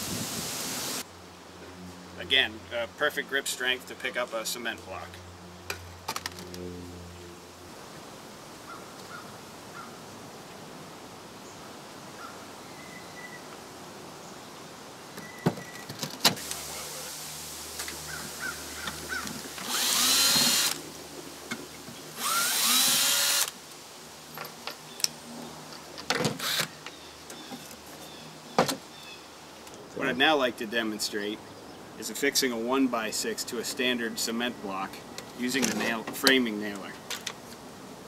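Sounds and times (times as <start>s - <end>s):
cordless drill motor whine: 19.1s - 20.8s, 22.2s - 23.6s, 26.4s - 26.7s.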